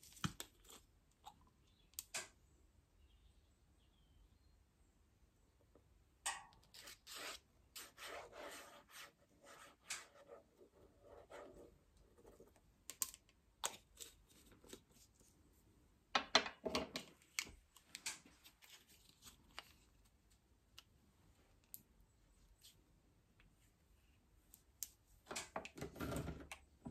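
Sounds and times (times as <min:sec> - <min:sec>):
paintbrush scratching on paper: 0:06.8 - 0:12.6.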